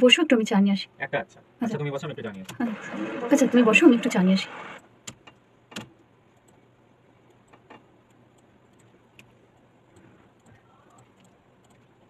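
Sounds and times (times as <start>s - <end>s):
low hum: 2.6s - 4.8s.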